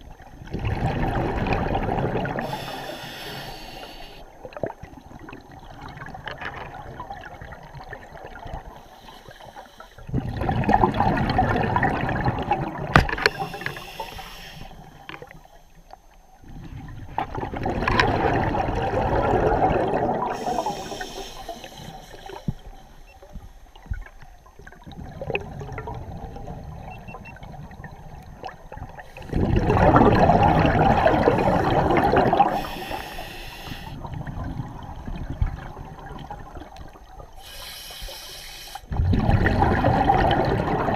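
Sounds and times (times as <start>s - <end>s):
exhaled bubbles underwater: 0.0s - 40.9s
short high hiss: 2.5s - 4.2s, 13.2s - 14.8s, 37.4s - 38.9s.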